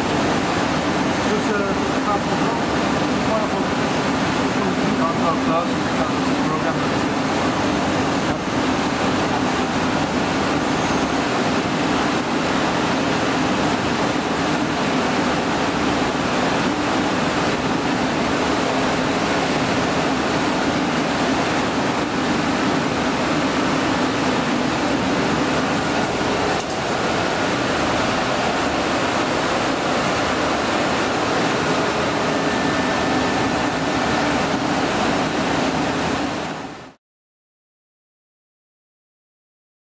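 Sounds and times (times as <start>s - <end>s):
lathe machine rushing noise: 22.2s - 35.8s.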